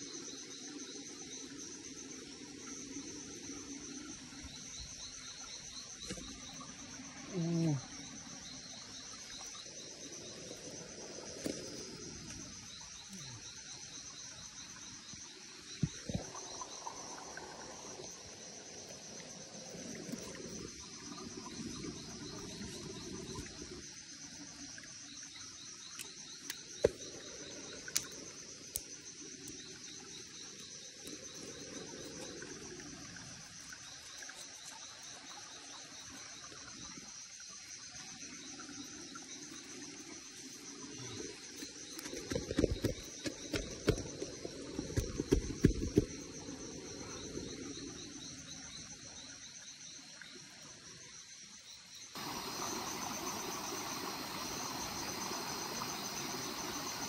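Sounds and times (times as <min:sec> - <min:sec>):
insects chirping chorus: 0:00.0 - 0:57.0.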